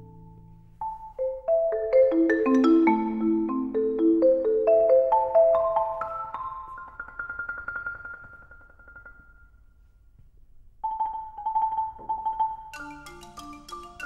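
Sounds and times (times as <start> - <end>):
marimba notes rapidly re-struck: 12.2 - 14.0.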